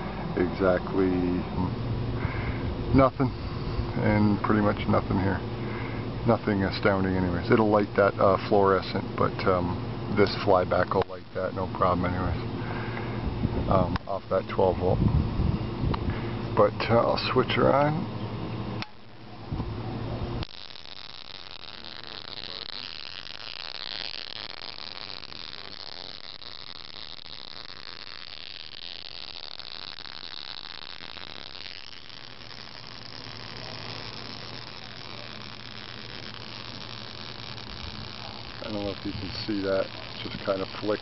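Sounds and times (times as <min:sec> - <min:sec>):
low hum: 0:00.0 - 0:06.5
spark gap hissing buzz: 0:00.0 - 0:41.0.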